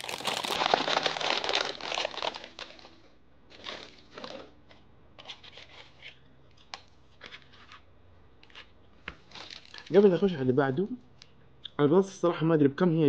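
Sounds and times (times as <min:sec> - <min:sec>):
paper bag crinkling: 0:00.0 - 0:04.5, 0:09.3 - 0:10.3.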